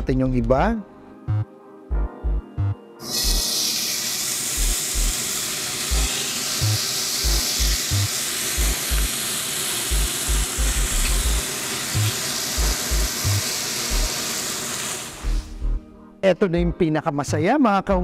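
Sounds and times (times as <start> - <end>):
thumping background music: 0.0 - 3.5, 4.6 - 5.2, 5.9 - 9.2, 9.9 - 14.1, 15.2 - 18.0
bacon sizzling in a frying pan: 3.1 - 15.5.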